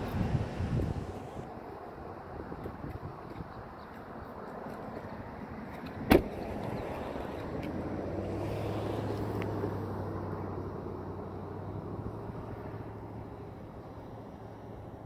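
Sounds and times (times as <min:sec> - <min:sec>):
car passing: 0:04.7 - 0:15.0.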